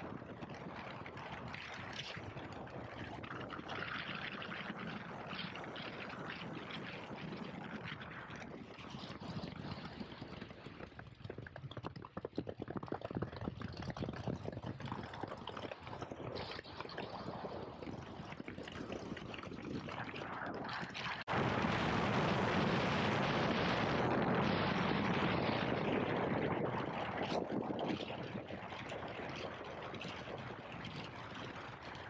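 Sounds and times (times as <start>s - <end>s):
wind rushing over microphone: 19.8s - 31.8s
wind thumps on microphone: 21.3s - 31.1s.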